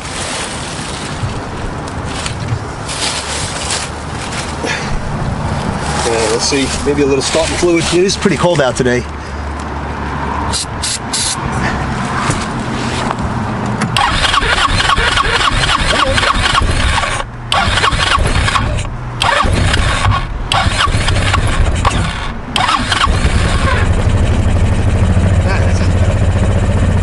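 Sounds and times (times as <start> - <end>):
go-kart engine cranking and sputtering: 13.1 - 27.0.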